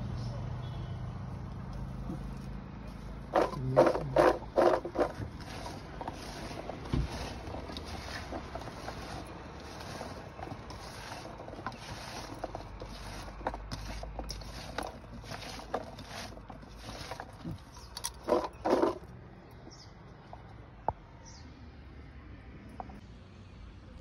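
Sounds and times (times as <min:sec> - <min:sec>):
handling noise: 0:02.0 - 0:19.1
vegetables tossed in metal bowl: 0:03.3 - 0:19.0.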